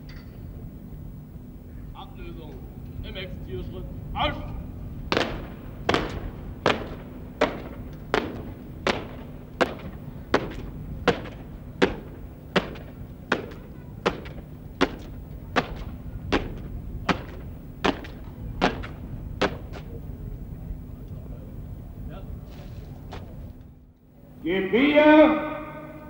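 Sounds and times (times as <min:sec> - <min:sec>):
boots stamping on pavement: 0:05.1 - 0:19.9.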